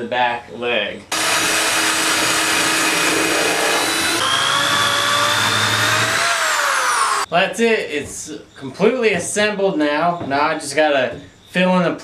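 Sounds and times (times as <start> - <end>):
corded drill whine: 1.1 - 7.3
cordless drill boring wood: 1.1 - 7.3.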